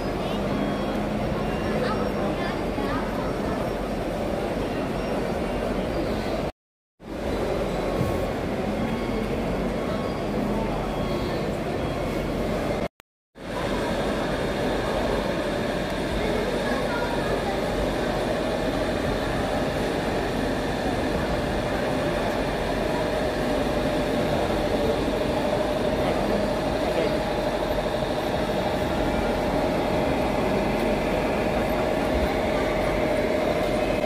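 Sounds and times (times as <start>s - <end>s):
crowd chatter: 0.0s - 6.5s, 7.3s - 34.0s
constant hum: 7.1s - 34.0s
machine-like drone: 13.5s - 34.0s.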